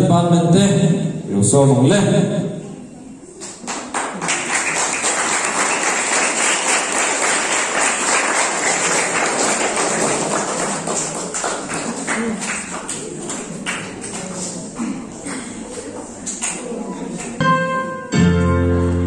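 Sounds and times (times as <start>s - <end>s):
man speaking: 0.0s - 2.6s
crowd clapping: 3.4s - 17.4s.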